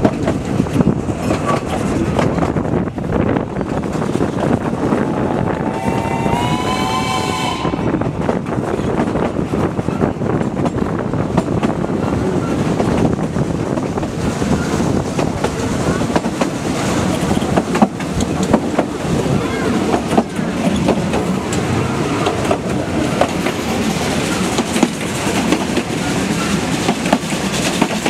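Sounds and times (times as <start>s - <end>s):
rail clicks: 0.0s - 28.0s
train carriages running on track: 0.0s - 28.0s
steam locomotive whistle: 5.2s - 8.2s.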